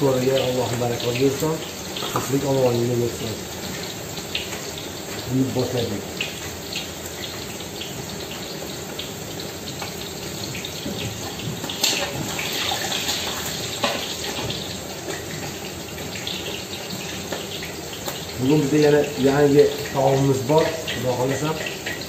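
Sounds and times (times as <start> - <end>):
food sizzling in hot oil: 0.0 - 22.0.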